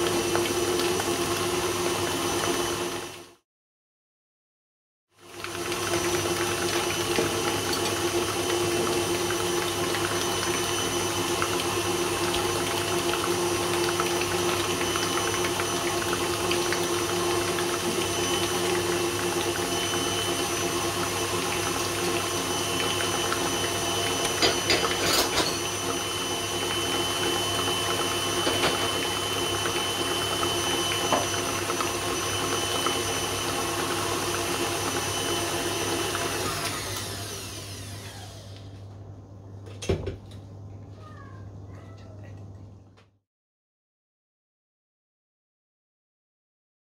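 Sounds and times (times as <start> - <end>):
stand mixer motor whine: 0.0 - 3.4, 5.2 - 38.8.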